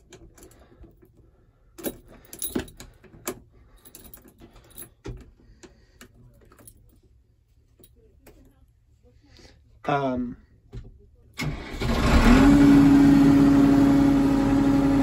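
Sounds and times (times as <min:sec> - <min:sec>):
keys jangling: 0:01.8 - 0:05.3.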